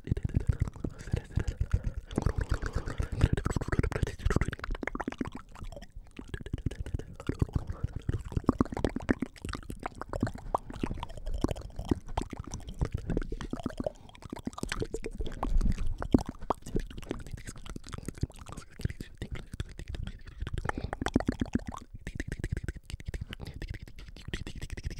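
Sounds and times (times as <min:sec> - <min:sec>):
wet mouth clicks and smacks: 0:00.0 - 0:24.9.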